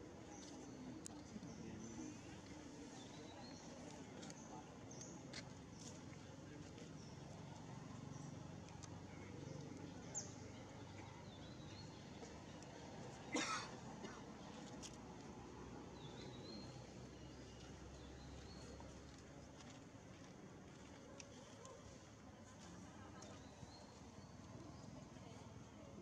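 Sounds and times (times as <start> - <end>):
soft bird chirps: 0.1 - 13.4, 14.4 - 19.8.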